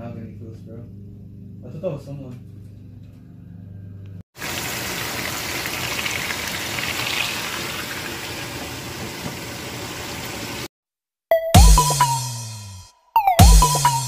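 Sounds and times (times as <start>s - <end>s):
tofu sizzling in hot oil: 4.4s - 10.7s.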